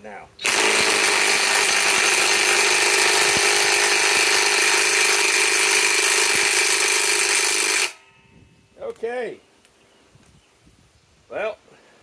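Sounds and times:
impact wrench hammering: 0.4s - 8.0s.

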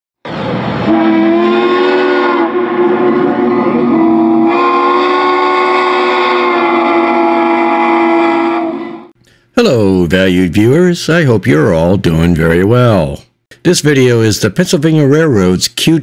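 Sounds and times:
steam locomotive chime whistle: 0.8s - 9.1s.

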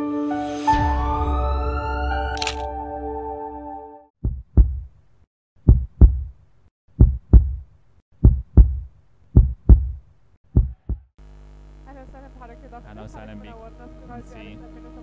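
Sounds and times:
heartbeat thumps: 4.2s - 4.9s, 5.6s - 11.1s.

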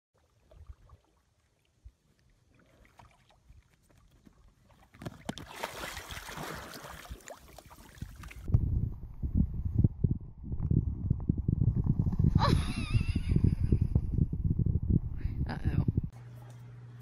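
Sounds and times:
dog splashing into water: 5.0s - 8.5s.

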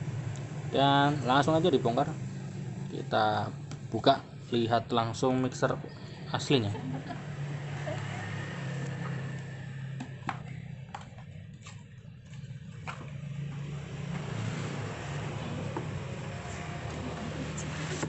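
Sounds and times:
packaging clicks and taps: 10.0s - 13.2s.

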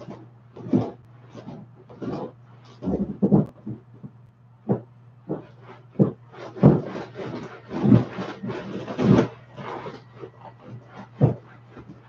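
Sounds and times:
inflatable toy creaking and squeaking: 4.7s - 12.0s.

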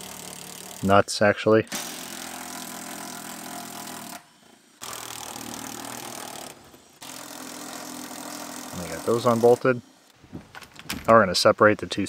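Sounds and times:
cordless impact driver running: 0.0s - 0.9s, 1.7s - 10.1s.

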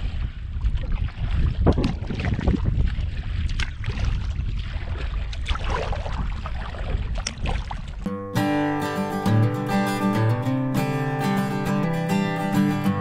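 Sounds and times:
water splashing around canoe: 0.0s - 8.1s
wind rumble on microphone: 0.0s - 8.1s.

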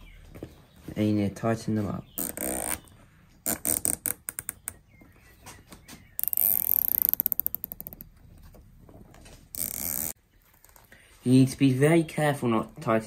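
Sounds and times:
cable ties ratcheting: 2.2s - 4.8s, 6.2s - 8.1s, 9.5s - 10.8s.

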